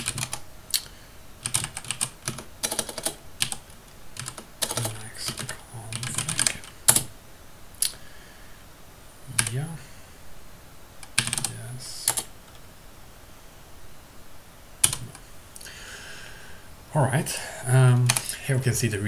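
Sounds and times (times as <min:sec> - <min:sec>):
computer keyboard typing: 0:00.0 - 0:00.4, 0:01.4 - 0:07.1, 0:09.4 - 0:09.6, 0:11.0 - 0:12.3, 0:14.8 - 0:15.2.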